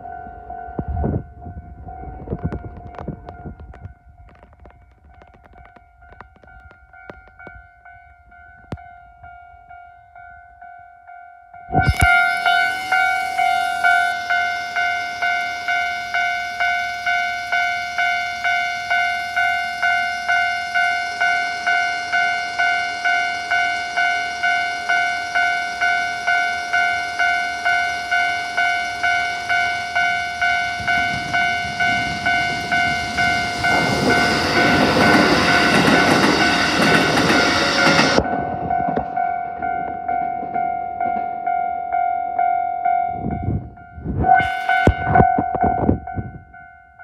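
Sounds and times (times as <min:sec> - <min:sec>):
electric train passing: 0:00.0 - 0:47.0
level crossing bell dinging: 0:11.6 - 0:43.2.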